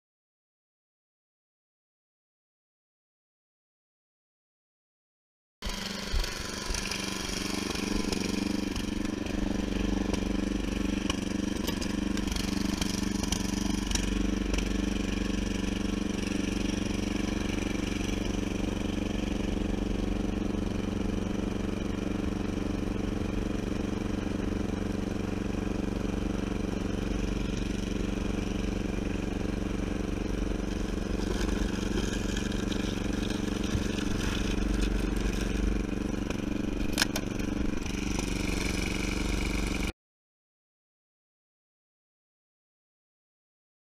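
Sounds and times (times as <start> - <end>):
mower engine running under load: 5.6 - 39.9.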